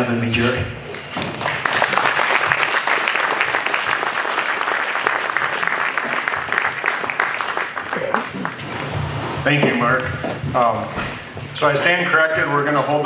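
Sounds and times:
audience applauding: 0:01.2 - 0:09.2.

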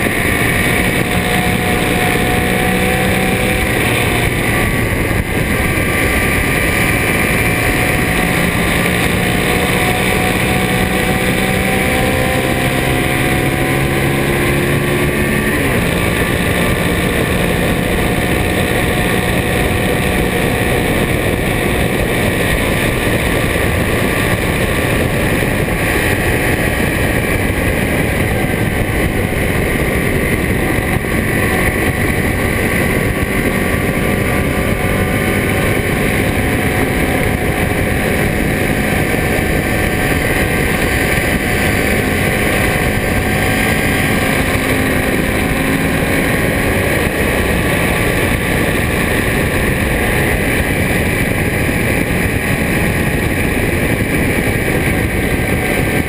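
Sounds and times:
motorcycle engine cruising: 0:00.0 - 0:56.0
wind noise on microphone: 0:00.0 - 0:56.0.

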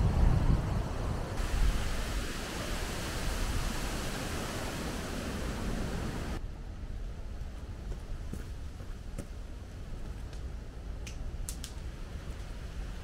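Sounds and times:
wind on microphone: 0:00.0 - 0:06.4.

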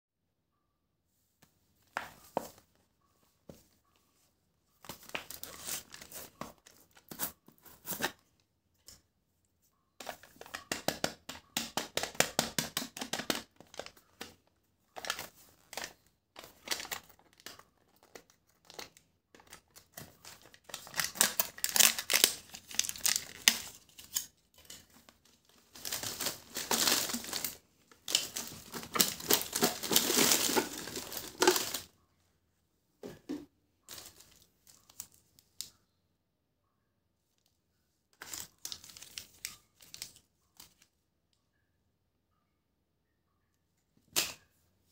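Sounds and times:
plastic packaging crinkling and tearing: 0:04.9 - 0:08.1, 0:15.0 - 0:31.9, 0:38.2 - 0:40.8
plastic-wrapped bars rustling: 0:20.0 - 0:31.9.

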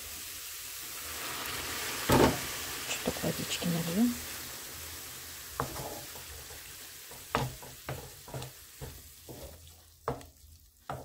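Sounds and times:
vegetables sizzling in a pan: 0:00.0 - 0:11.0
water splashing into a pan: 0:01.0 - 0:03.0
wooden spatula scraping a pan: 0:05.6 - 0:11.0.

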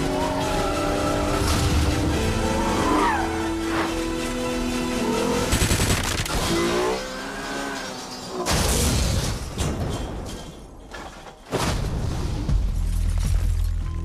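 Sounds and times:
film score: 0:00.0 - 0:14.0
loud car crash: 0:07.4 - 0:12.4.

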